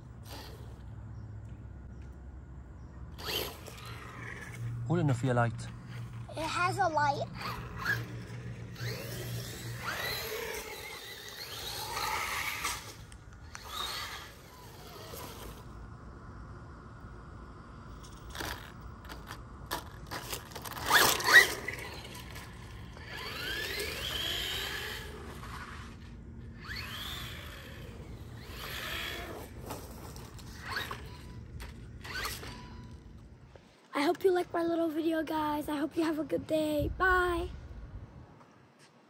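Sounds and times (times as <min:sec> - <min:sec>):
electric motor whine: 0:03.2 - 0:04.8, 0:07.4 - 0:15.8, 0:18.3 - 0:33.3
tyres scraping over concrete: 0:05.7 - 0:15.7, 0:18.0 - 0:33.2
scraping and crunching: 0:18.0 - 0:26.0, 0:26.6 - 0:33.8.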